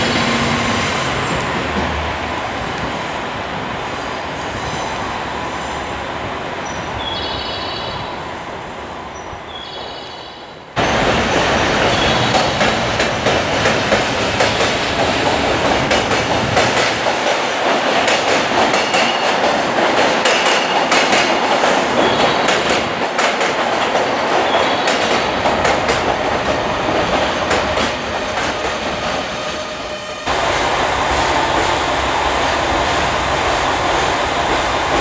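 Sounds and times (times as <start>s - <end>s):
rumble and rattle of train cars: 0.0s - 35.0s
train wheels clacking on rail joints: 10.8s - 29.6s.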